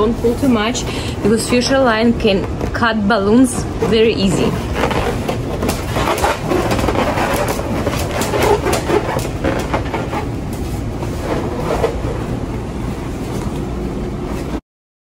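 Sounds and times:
balloons rubbing together: 0:03.6 - 0:12.5.

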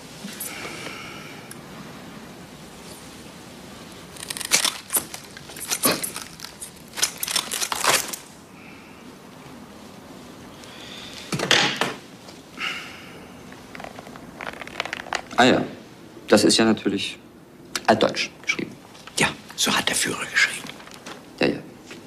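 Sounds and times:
folder rustling: 0:04.2 - 0:08.3, 0:13.5 - 0:15.4.

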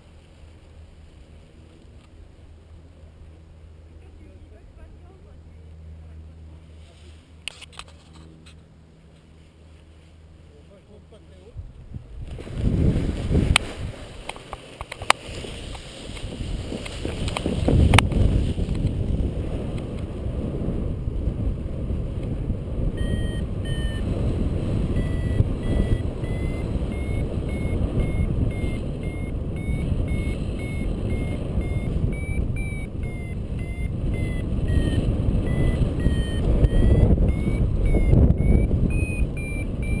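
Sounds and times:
wind rushing across microphone: 0:11.5 - 0:14.3, 0:15.0 - 0:40.0
variometer beeping: 0:22.9 - 0:24.2, 0:24.8 - 0:40.0.

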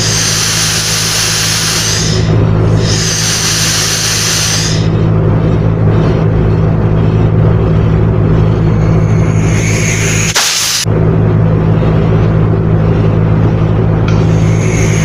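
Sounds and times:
gas hissing from tube: 0:00.0 - 0:04.9, 0:09.1 - 0:10.9, 0:14.1 - 0:15.0
steady low hum: 0:00.0 - 0:15.0.

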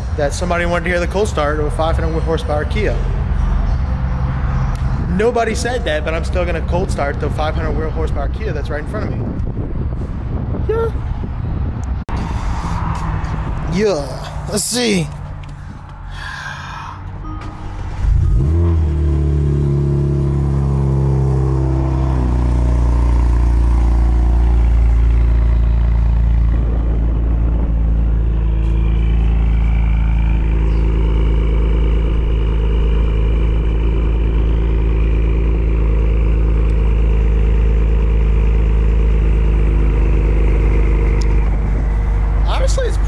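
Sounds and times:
car engine starting and idling: 0:12.6 - 0:43.0.

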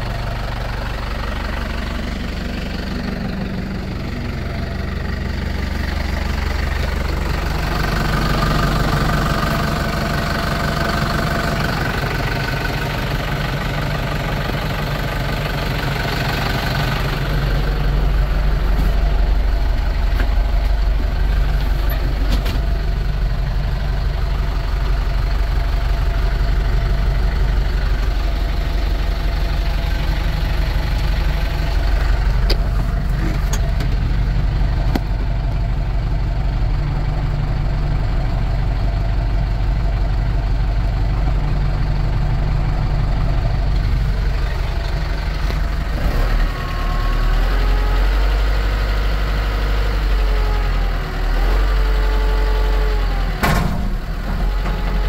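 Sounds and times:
tractor diesel engine idling: 0:00.0 - 0:55.0.

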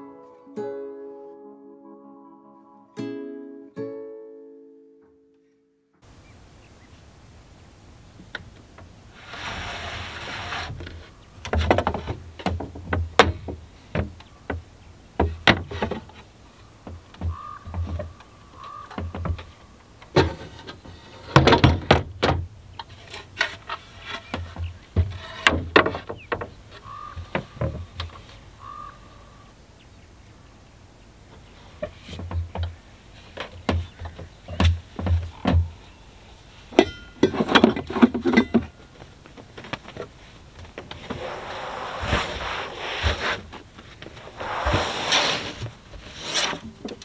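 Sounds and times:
wooden board sliding scrape: 0:09.1 - 0:12.2, 0:20.2 - 0:21.9, 0:22.8 - 0:26.2, 0:40.8 - 0:47.0
wooden boards knocking: 0:10.6 - 0:28.2, 0:31.8 - 0:35.8.

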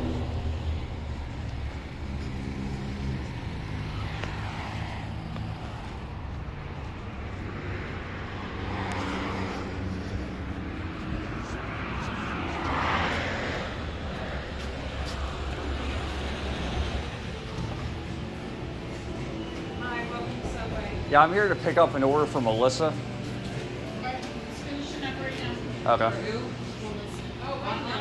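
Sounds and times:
car engine humming: 0:00.0 - 0:28.0.

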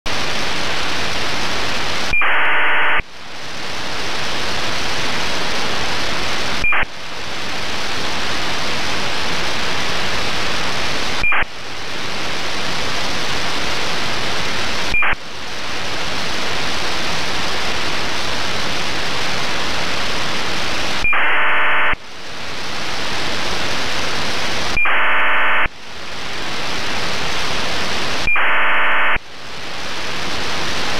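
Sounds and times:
radio static hiss: 0:00.1 - 0:30.9
data tone bursts: 0:02.1 - 0:03.0, 0:06.6 - 0:06.9, 0:11.2 - 0:11.5, 0:14.9 - 0:15.2, 0:21.0 - 0:22.0, 0:24.7 - 0:25.7, 0:28.3 - 0:29.2.

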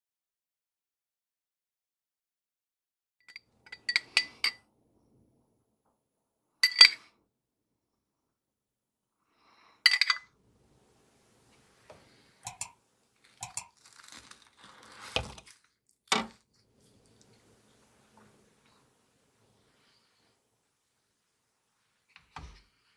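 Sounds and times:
glass and metal kitchenware clinking: 0:03.7 - 0:04.6, 0:06.6 - 0:07.0, 0:09.9 - 0:10.3, 0:12.4 - 0:14.2.

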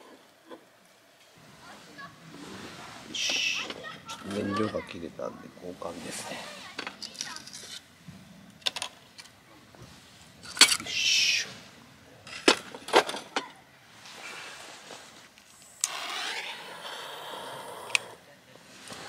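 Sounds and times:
gas burner hissing: 0:01.6 - 0:04.2
gas escaping hiss: 0:02.3 - 0:03.9.

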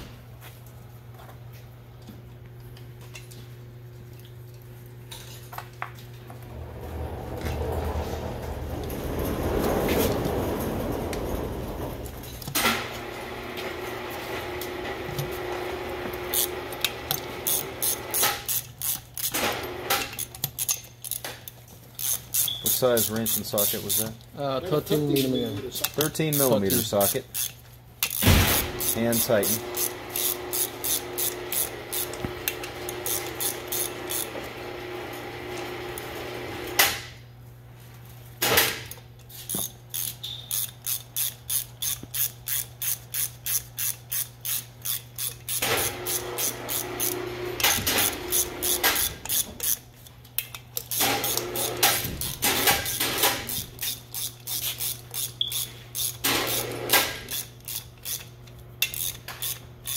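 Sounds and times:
ratchet wrench clicking: 0:16.1 - 0:19.4, 0:20.0 - 0:24.3, 0:25.8 - 0:32.3, 0:32.9 - 0:34.3, 0:39.2 - 0:59.9.

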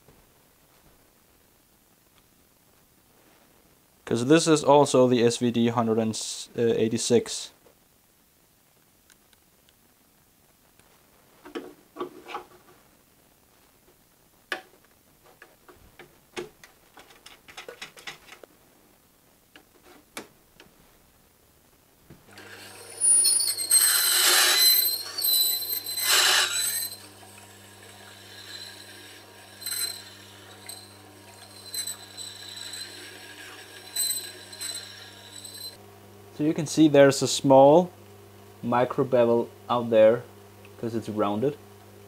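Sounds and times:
metal scraping on grinding wheel: 0:22.3 - 0:35.8
sharpening machine motor humming: 0:22.3 - 0:35.8.

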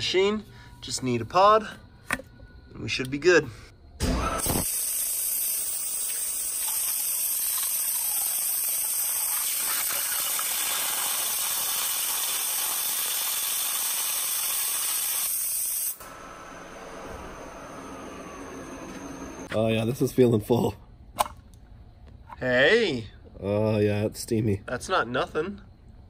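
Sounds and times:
waterjet stream hissing: 0:04.4 - 0:19.5
water jets spraying: 0:04.6 - 0:15.2.

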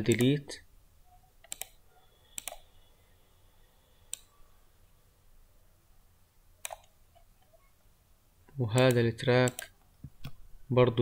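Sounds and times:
computer mouse clicks: 0:00.0 - 0:00.4, 0:01.4 - 0:01.8, 0:02.4 - 0:02.7, 0:04.1 - 0:04.4, 0:06.6 - 0:07.3, 0:08.8 - 0:10.4.

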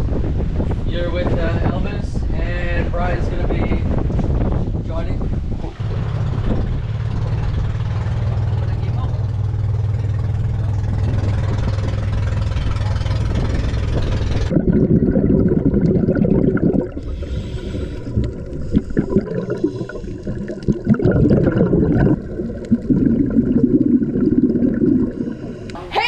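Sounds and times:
boat engine running: 0:02.2 - 0:26.0
underwater bubbling of exhaled air: 0:14.0 - 0:25.8.

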